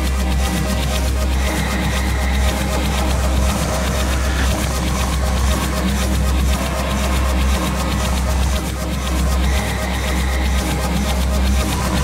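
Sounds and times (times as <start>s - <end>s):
deep bass drone: 0.0s - 12.0s
reversed experimental electronic music: 0.0s - 12.0s.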